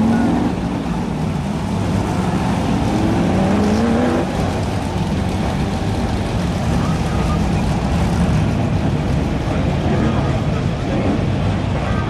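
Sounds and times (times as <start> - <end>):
race car engines running: 0.0 - 12.0
engine revving up: 2.1 - 4.6.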